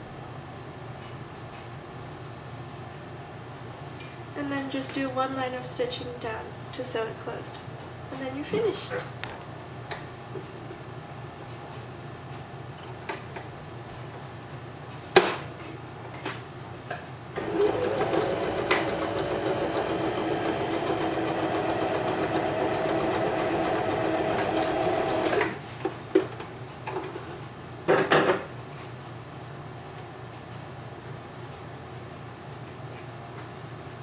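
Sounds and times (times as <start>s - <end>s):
sewing machine stitching: 17.4s - 25.6s.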